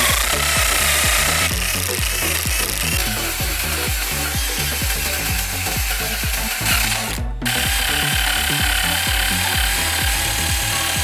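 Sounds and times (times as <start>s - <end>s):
rotary tool wire brush scrubbing metal: 0.0s - 8.6s
background music with steady beat: 0.0s - 11.0s.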